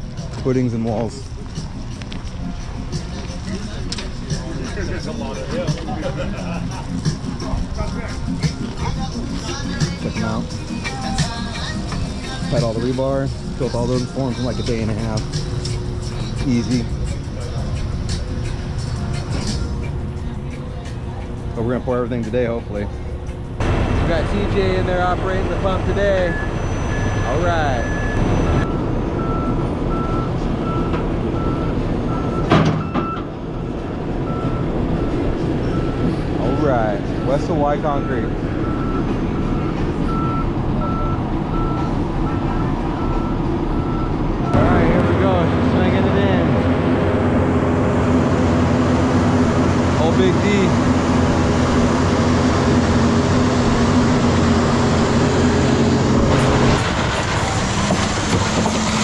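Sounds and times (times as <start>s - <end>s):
diesel truck engines rumbling: 0.0s - 59.0s
reversing alarm beeping: 23.6s - 46.1s.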